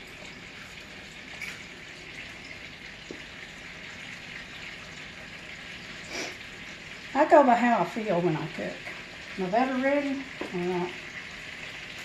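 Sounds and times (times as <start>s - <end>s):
butter sizzling in a pan: 0.0s - 12.0s.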